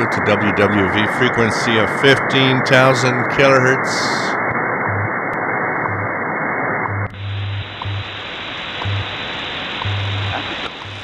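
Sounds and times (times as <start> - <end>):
shortwave radio hiss: 0.0 - 4.4, 7.2 - 11.0
low hum pulses: 1.3 - 11.0.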